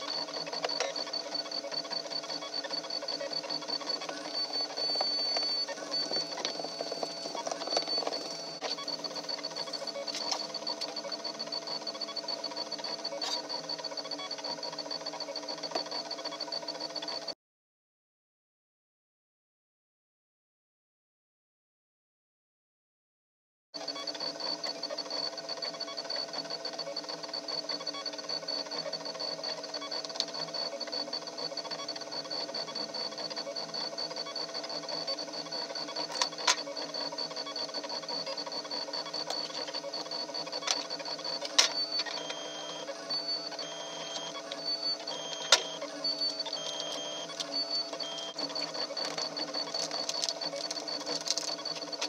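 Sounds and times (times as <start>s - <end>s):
stepper motors whining: 0.0s - 16.4s.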